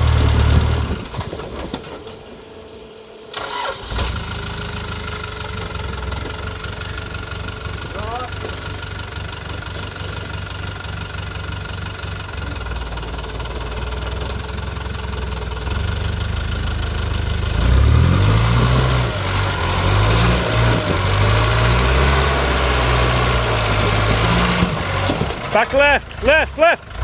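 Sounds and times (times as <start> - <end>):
engine revving under load: 17.3 - 27.0.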